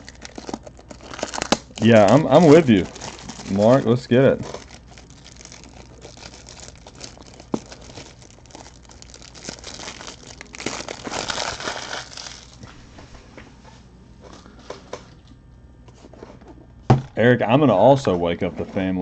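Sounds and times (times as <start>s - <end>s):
crinkly packaging crumpling: 0.0s - 12.8s.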